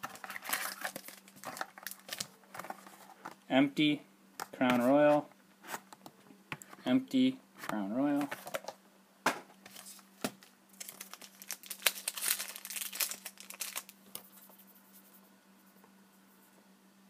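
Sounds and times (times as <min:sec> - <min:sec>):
foil wrappers crinkling: 0:00.0 - 0:02.5, 0:09.7 - 0:14.0.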